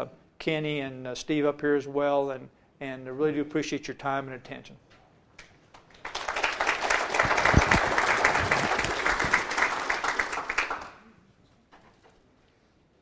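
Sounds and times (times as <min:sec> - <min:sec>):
audience applauding: 0:05.8 - 0:11.1.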